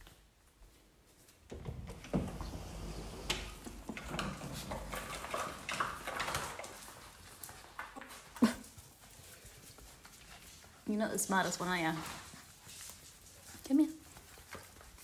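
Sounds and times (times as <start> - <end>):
puppy claws clicking on tiles: 4.1 - 10.9.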